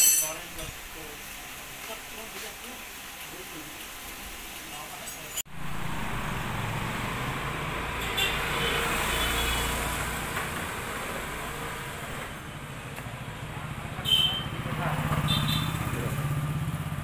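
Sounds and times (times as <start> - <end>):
motor scooter passing by: 5.5 - 17.0.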